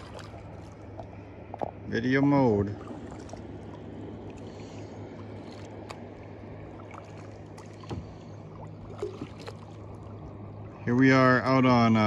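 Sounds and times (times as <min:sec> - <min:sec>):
water dripping and splashing: 0:00.0 - 0:00.8, 0:06.8 - 0:09.8
paddle pulling through water: 0:00.0 - 0:12.0
steady low hum: 0:00.0 - 0:12.0.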